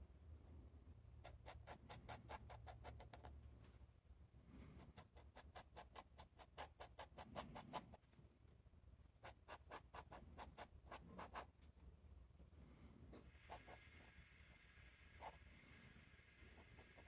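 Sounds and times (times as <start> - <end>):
pen nib scratching on paper: 1.2 - 3.3, 4.8 - 8.0, 9.2 - 11.5.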